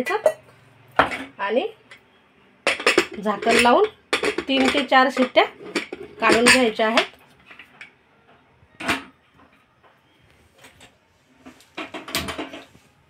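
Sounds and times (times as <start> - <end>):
clicks and clatter: 2.7 - 7.9.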